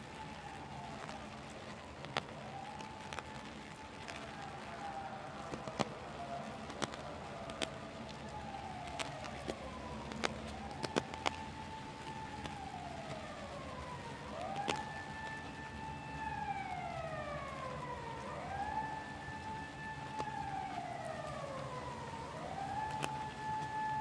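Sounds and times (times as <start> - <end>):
emergency vehicle siren wailing: 0.0 - 24.0
drop tapping on umbrella: 0.8 - 13.3, 14.2 - 16.3, 22.4 - 24.0.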